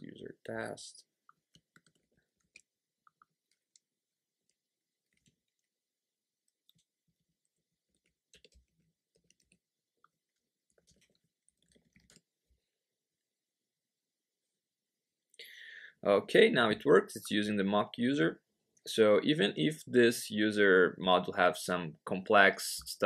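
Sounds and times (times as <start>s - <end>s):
computer keyboard typing: 1.4s - 5.7s, 7.5s - 12.3s.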